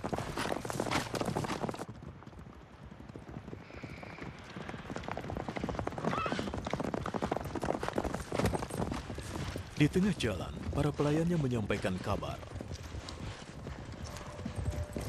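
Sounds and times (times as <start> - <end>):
horses galloping on hard ground: 0.0 - 15.0.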